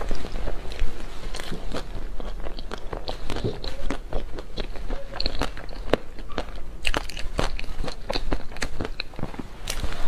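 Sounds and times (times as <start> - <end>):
person chewing crunchy cake: 0.0 - 10.0.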